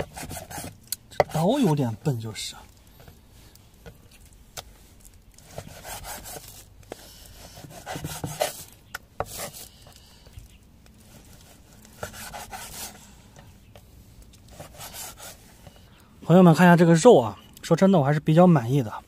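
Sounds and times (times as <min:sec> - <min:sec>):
cleaver sawing through meat: 0:05.4 - 0:06.5.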